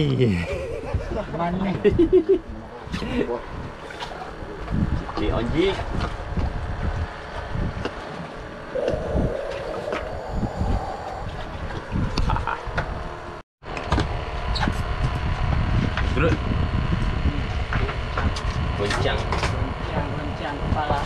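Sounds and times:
wind buffeting microphone: 0.5s - 3.8s, 4.6s - 13.3s.

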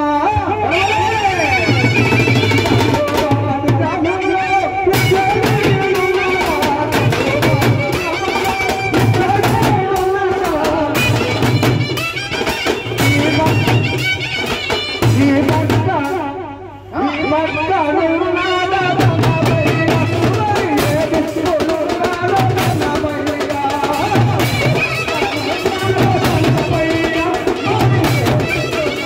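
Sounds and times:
snare drums: 4.9s - 15.9s, 19.1s - 29.0s
bass drums: 4.9s - 16.3s, 18.8s - 29.0s.

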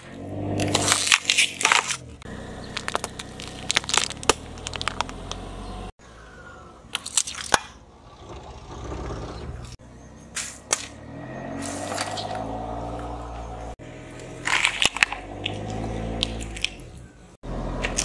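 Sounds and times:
car engine humming: 0.0s - 6.8s, 7.8s - 18.0s
tyre crushing plastic and cardboard: 0.6s - 2.0s, 2.8s - 5.4s.

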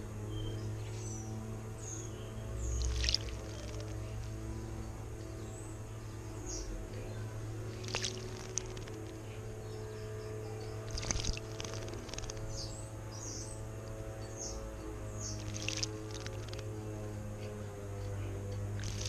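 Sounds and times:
background music with held chords: 0.0s - 8.5s, 12.5s - 19.0s
bird splashing water: 2.8s - 3.9s, 7.7s - 9.1s, 10.9s - 12.4s, 15.4s - 16.6s, 18.8s - 19.0s.

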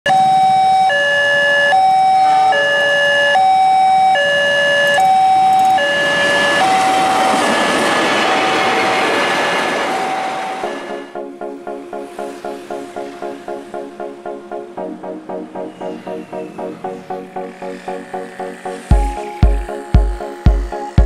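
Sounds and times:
level crossing two-tone alarm: 0.1s - 11.1s
passing train rushing: 2.1s - 3.4s, 4.1s - 21.0s.

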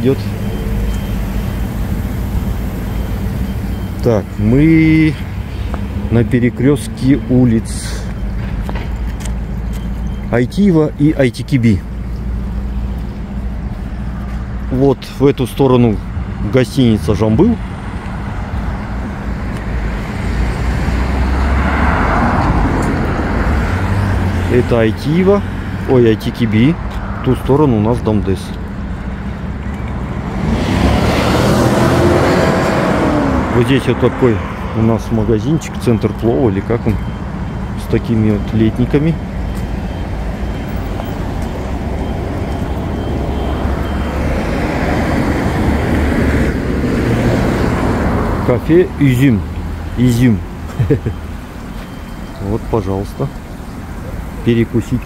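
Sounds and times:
vehicle passing close: 0.0s - 11.0s, 16.3s - 55.0s
street traffic rumble: 0.0s - 55.0s
car driving past: 17.8s - 24.7s, 29.5s - 35.2s, 39.4s - 48.7s.

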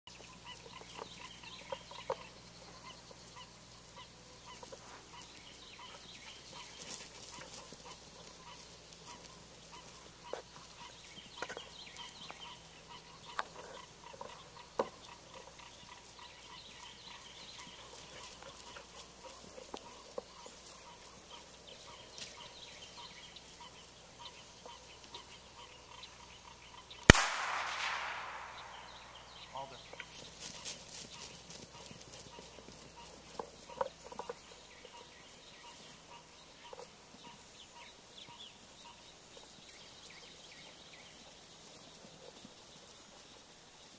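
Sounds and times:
bird calls: 0.1s - 41.9s
pistol shot with echo: 27.1s - 29.5s
short sharp sounds: 27.1s - 29.5s.

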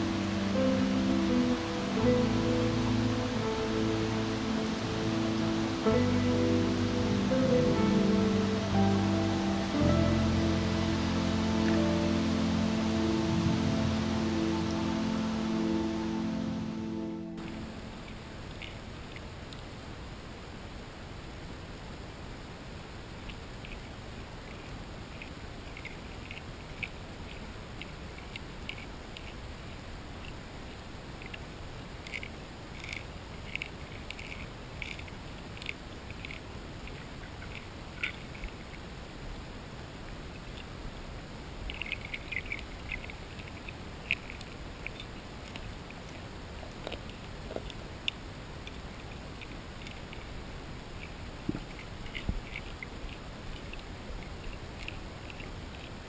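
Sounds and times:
fish crunching food underwater: 23.2s - 56.0s.

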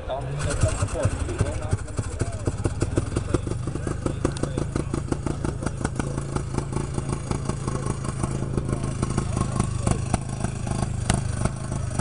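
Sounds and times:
snowmobile engine idling: 0.1s - 12.0s.

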